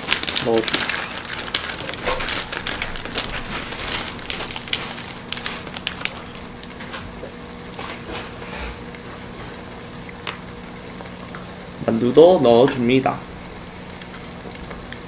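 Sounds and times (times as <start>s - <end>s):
plastic packets crinkling: 0.0s - 6.9s.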